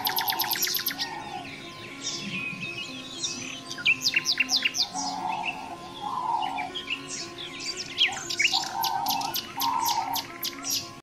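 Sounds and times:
songbirds chirping: 0.0s - 11.0s
rough low bird call: 3.7s - 10.8s.

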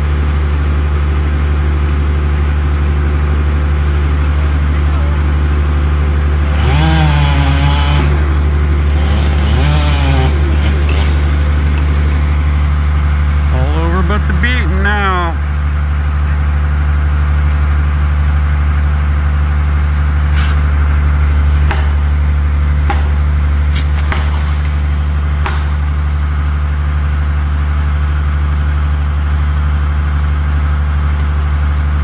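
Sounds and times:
engine idling: 0.0s - 32.0s.

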